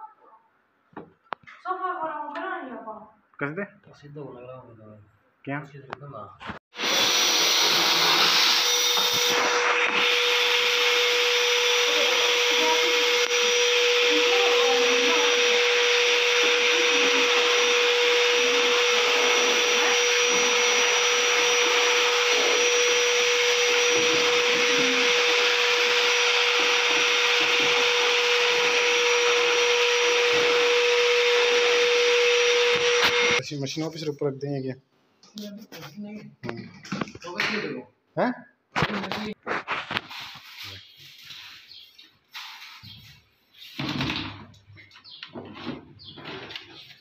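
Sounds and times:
vacuum cleaner running: 6.7 - 33.4.

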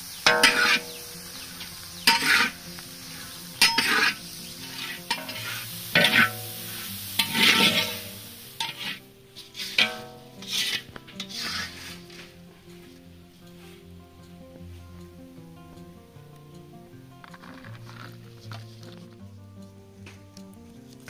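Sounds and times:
food sizzling in hot oil: 0.0 - 12.4
spatula scraping pan: 0.2 - 12.4.

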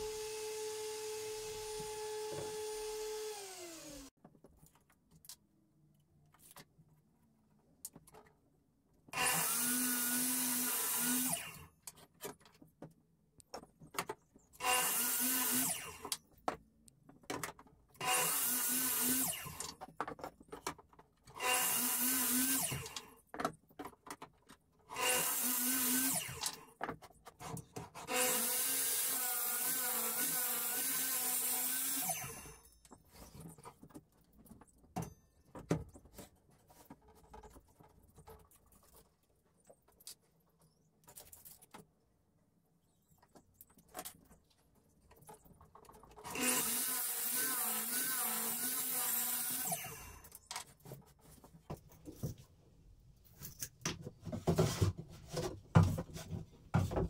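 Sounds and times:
mitre saw cutting wood: 0.0 - 4.1, 9.2 - 11.6, 14.6 - 16.1, 18.0 - 19.6, 21.4 - 23.0, 24.9 - 26.6, 28.0 - 32.6, 46.2 - 50.3.

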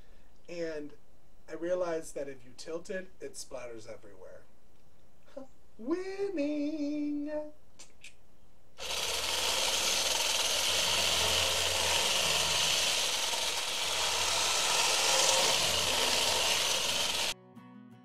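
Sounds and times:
immersion blender churning batter: 8.8 - 17.3.

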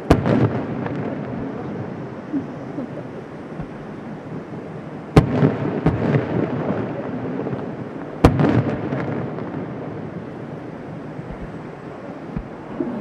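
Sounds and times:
firework boom with rolling echo: 0.0 - 13.0
small firework pops: 3.6 - 4.1, 11.2 - 12.6.

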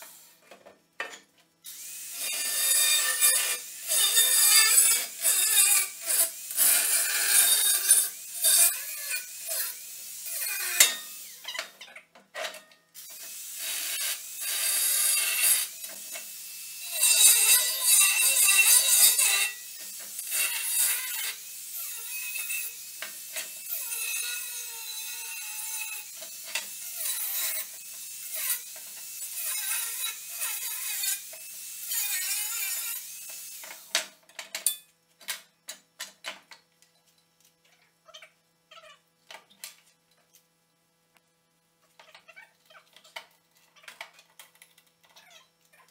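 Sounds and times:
angle grinder cutting steel: 1.7 - 11.4, 13.0 - 33.9.

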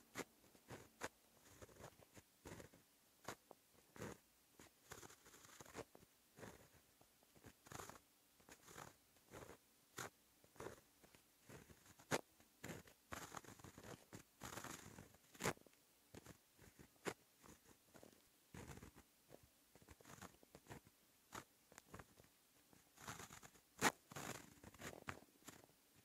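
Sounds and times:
pen nib scratching on paper: 0.1 - 26.0.

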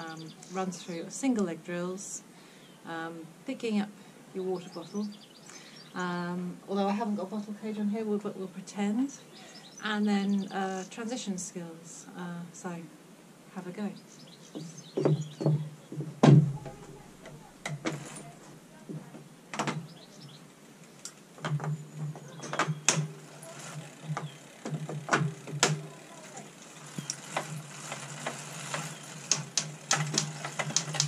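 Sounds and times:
bike clicks and knocks: 14.5 - 18.3, 18.9 - 20.0, 21.0 - 31.0
trainer roller whirring: 21.3 - 31.0.

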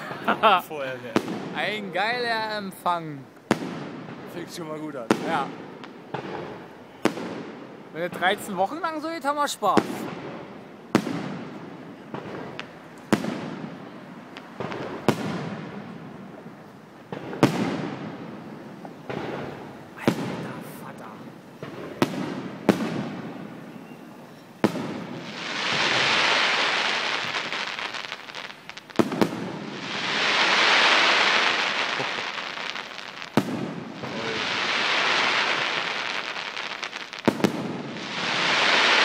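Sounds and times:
firework hiss: 0.0 - 8.6, 9.5 - 39.0
firework shells bursting: 17.0 - 39.0.

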